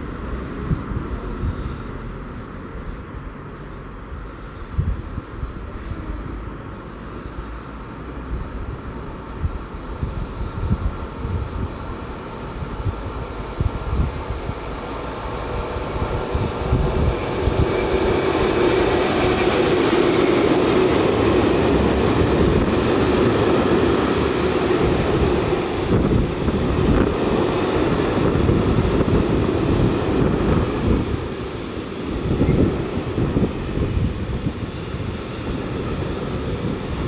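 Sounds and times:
train passing: 0.0s - 37.0s.

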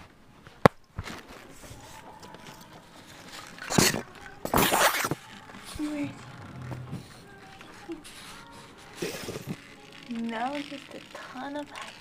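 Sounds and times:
packing peanuts rustling: 7.3s - 12.0s.

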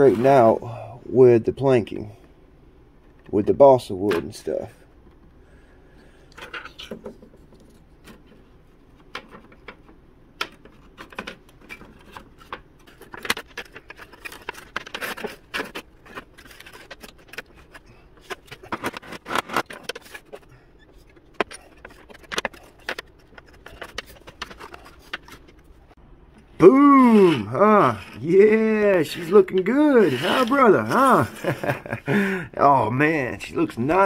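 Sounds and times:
wooden pieces clicking and rattling: 6.3s - 25.9s.

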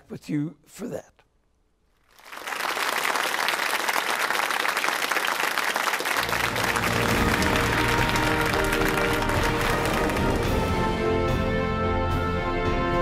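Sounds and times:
audience applause: 2.1s - 10.9s
show music: 6.2s - 13.0s.

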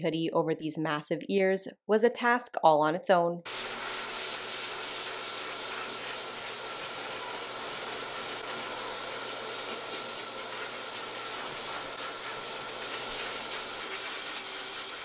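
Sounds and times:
blower motor whine: 3.5s - 15.0s
grooming dryer air hiss: 3.5s - 15.0s.

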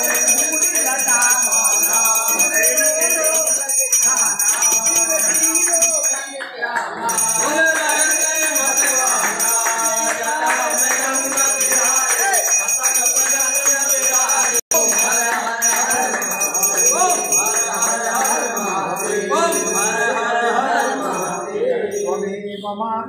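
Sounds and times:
worshippers chanting together: 0.0s - 23.0s
temple bells ringing: 7.2s - 22.2s.

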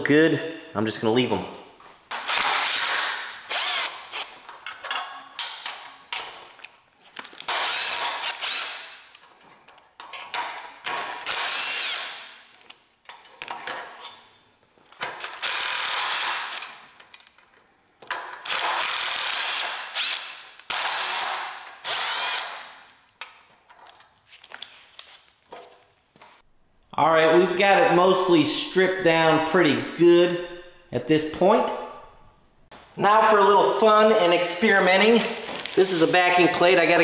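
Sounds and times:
impact driver running bolts: 2.2s - 4.4s.

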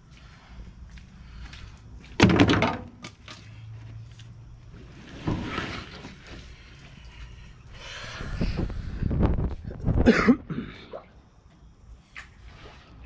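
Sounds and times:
heavy thunk with rattle: 2.2s - 3.0s.

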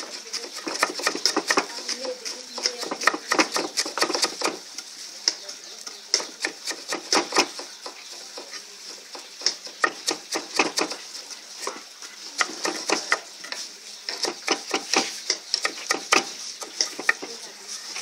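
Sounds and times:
knife chopping on wooden board: 0.4s - 4.6s, 5.9s - 11.0s, 14.1s - 17.3s.

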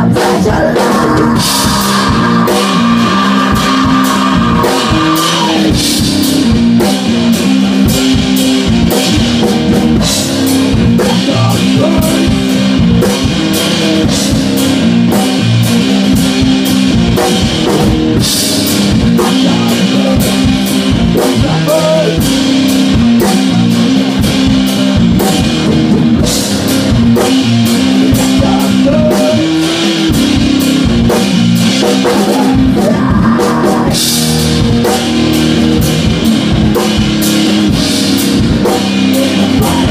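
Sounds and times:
man singing into a microphone: 0.0s - 5.7s, 11.0s - 12.4s, 19.2s - 20.6s, 21.2s - 22.3s, 28.1s - 29.7s, 32.1s - 34.0s, 39.0s - 39.9s
drum kit beating: 0.0s - 39.9s
electric bass line: 0.0s - 39.9s.

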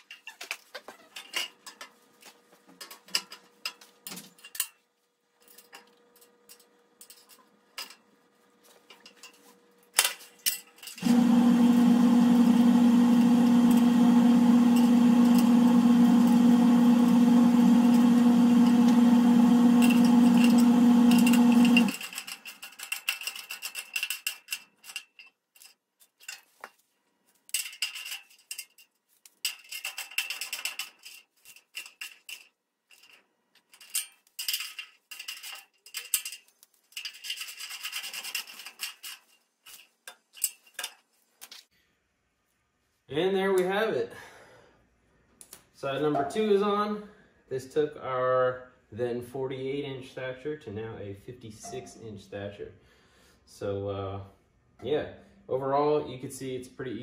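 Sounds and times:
small metal parts clinking: 9.0s - 11.0s, 21.2s - 26.7s, 27.4s - 41.6s.

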